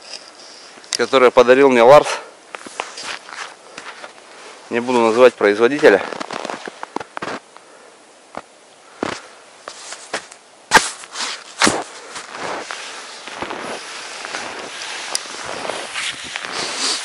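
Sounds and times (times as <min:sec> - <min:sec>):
skis crunching in snow: 0:02.6 - 0:07.4, 0:09.0 - 0:17.0.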